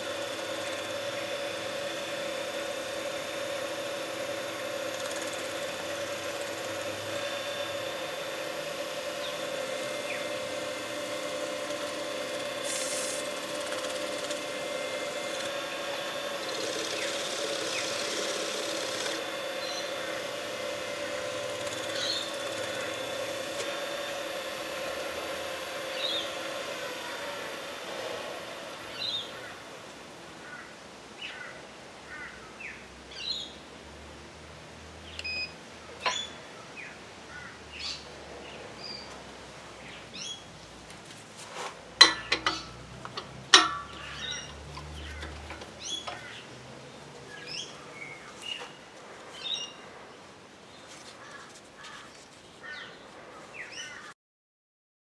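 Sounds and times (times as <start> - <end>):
faint high whine: 0.0 - 40.8
birds chirping: 19.5 - 23.0, 28.8 - 33.6, 43.8 - 49.9.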